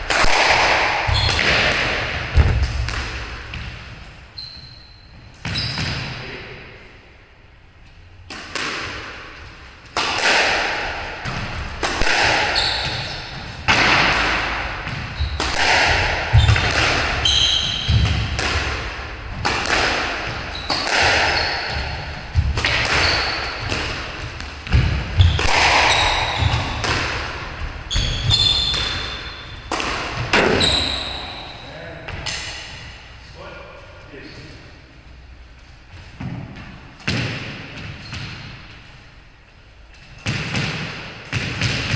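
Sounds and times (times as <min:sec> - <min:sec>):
squash ball hits echoing: 0:00.0 - 0:04.0, 0:08.2 - 0:33.0, 0:36.2 - 0:38.8, 0:40.2 - 0:41.9
shoe squeaks on wooden floor: 0:01.1 - 0:01.5, 0:04.3 - 0:05.9, 0:12.5 - 0:13.4, 0:15.1 - 0:15.4, 0:17.2 - 0:18.0, 0:20.5 - 0:22.0, 0:23.0 - 0:23.7, 0:25.2 - 0:26.8, 0:27.9 - 0:29.7, 0:30.4 - 0:31.7.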